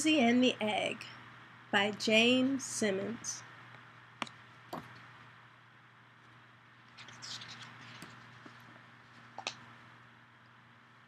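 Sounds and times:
low hum and hiss: 0.0 - 11.0
paper rustling: 6.9 - 9.5.

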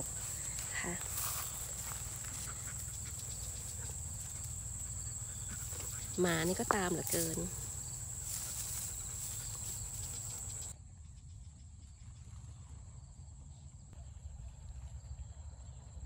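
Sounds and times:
insects chirring: 0.0 - 10.7.

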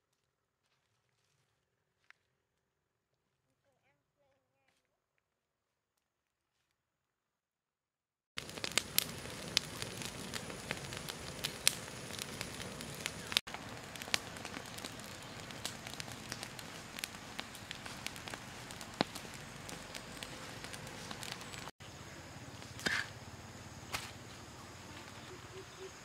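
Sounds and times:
branches snapping and popping: 8.4 - 21.7, 22.6 - 23.1, 23.9 - 24.2
fire crackling: 8.4 - 25.7
fire hissing: 8.4 - 25.7.

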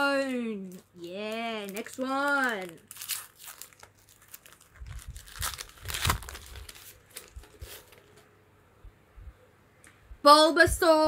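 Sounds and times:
plastic wrapper tearing and crinkling: 0.0 - 8.2.

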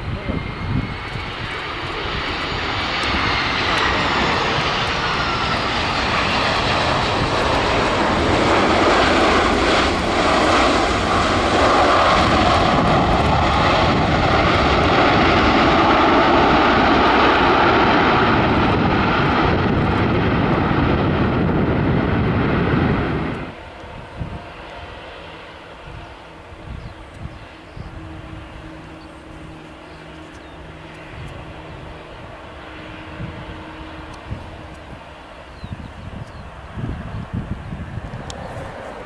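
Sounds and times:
jet engine roar: 0.0 - 39.0.

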